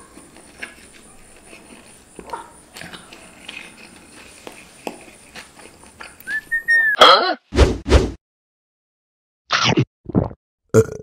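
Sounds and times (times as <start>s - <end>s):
faint eating sounds: 0.0s - 6.5s
rising cartoon whistle: 6.3s - 7.0s
loud swooping sound: 7.5s - 8.2s.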